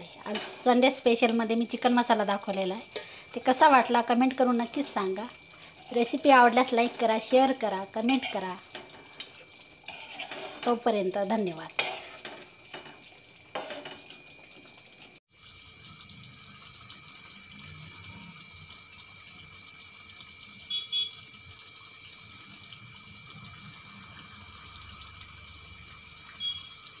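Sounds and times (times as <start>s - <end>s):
water running from a tap: 0.0s - 27.0s
metal spatula scraping a pan: 0.2s - 0.8s, 7.9s - 10.9s, 11.7s - 14.0s.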